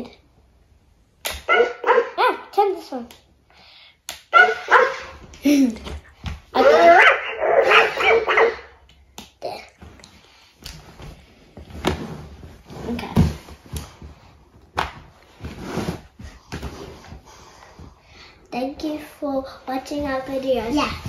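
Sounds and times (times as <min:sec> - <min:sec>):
electronic toy puppy barking: 0:01.5 - 0:02.3, 0:04.3 - 0:05.0, 0:06.6 - 0:08.7.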